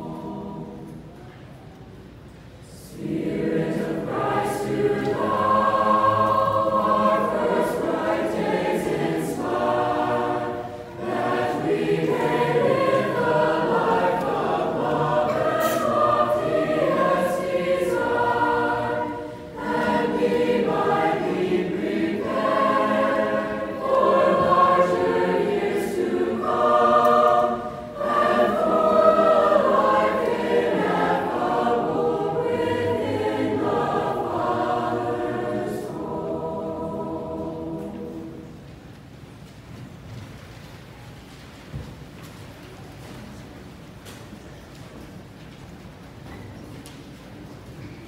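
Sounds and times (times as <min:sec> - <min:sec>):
choir singing in parts: 0:00.0 - 0:01.1, 0:02.6 - 0:38.8.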